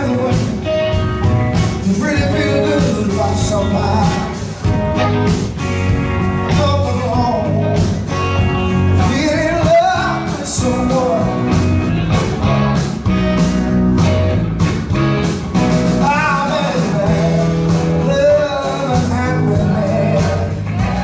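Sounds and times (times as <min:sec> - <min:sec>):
man singing: 0:00.0 - 0:05.1, 0:06.4 - 0:12.2, 0:15.9 - 0:21.0
bass guitar: 0:00.0 - 0:21.0
drum kit: 0:00.0 - 0:21.0
electric guitar: 0:00.0 - 0:21.0.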